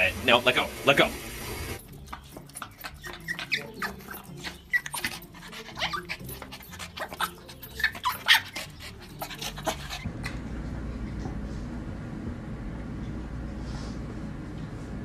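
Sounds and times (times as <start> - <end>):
small dog whining and yelping: 2.6 - 10.1.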